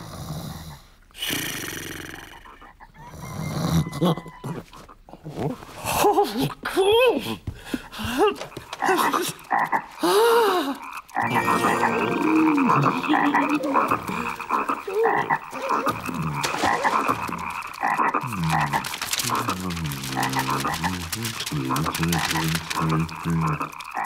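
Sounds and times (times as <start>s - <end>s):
cartoon frogs croaking: 8.4s - 24.0s
voice-like calls rising and falling: 11.2s - 17.2s.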